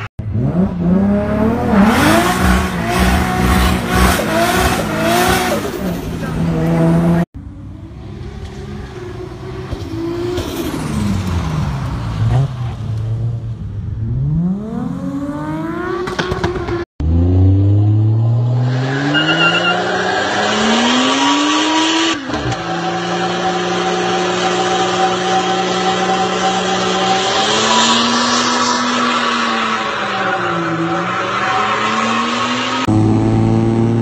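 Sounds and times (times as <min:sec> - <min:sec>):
car engine revving: 0:00.0 - 0:07.3
tyre squeal: 0:18.9 - 0:20.5.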